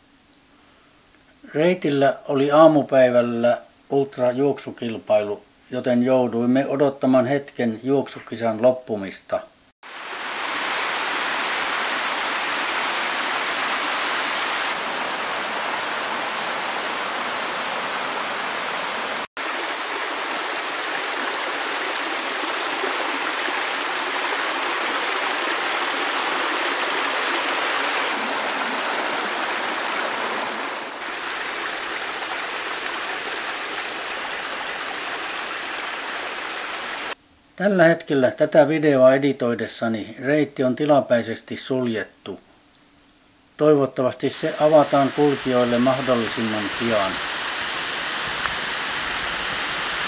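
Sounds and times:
mountain stream rushing: 0:09.8 - 0:37.2, 0:44.4 - 0:50.0.

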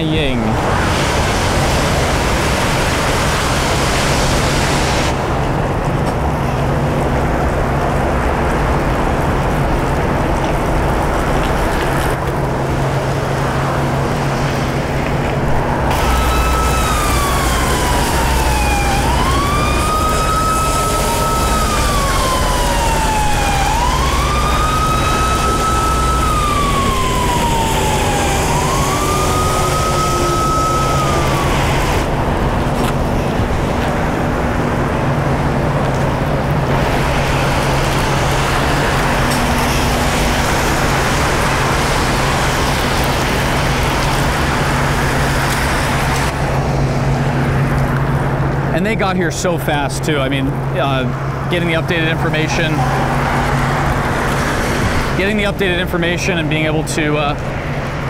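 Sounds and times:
emergency siren wailing: 0:00.0 - 0:48.7, 0:50.5 - 0:58.0
low engine rumble: 0:00.0 - 0:58.0
tyres hissing on wet road: 0:00.0 - 0:58.0.

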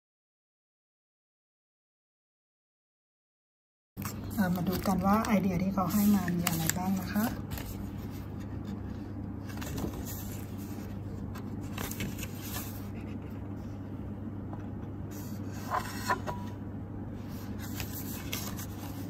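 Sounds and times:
sharp paper crackles: 0:04.0 - 0:08.3, 0:09.4 - 0:13.0, 0:17.6 - 0:19.0
paper rustling: 0:04.0 - 0:13.5, 0:17.3 - 0:19.0.

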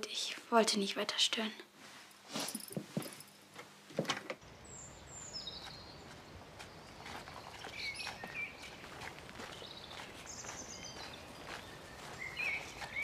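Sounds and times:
steady outdoor hum: 0:03.0 - 0:13.0
small birds chirping: 0:04.4 - 0:13.0.

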